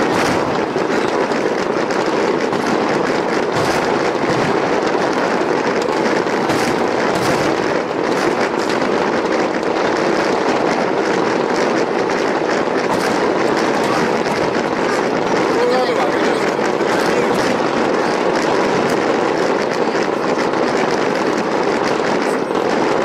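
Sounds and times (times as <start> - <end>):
fireworks bursts and crackling: 0.0 - 23.0
sharp firework bangs: 0.0 - 23.0.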